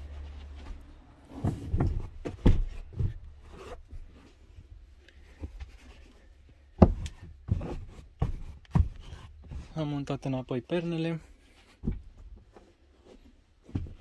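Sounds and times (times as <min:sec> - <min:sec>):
fabric rubbing and shuffling: 0:00.0 - 0:06.5
cushions dull thumps: 0:13.6 - 0:14.0.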